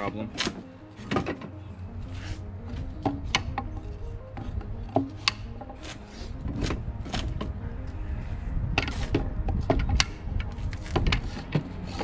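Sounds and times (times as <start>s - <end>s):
tubes knocking on wooden rack: 8.8s - 10.2s.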